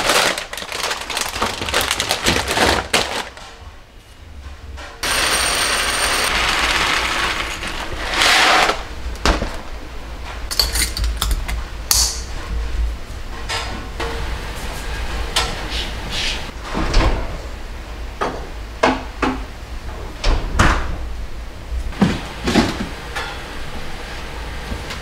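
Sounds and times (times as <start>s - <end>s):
foil packets rustling: 0.0s - 3.6s
grains pouring into glass jar: 5.0s - 7.9s.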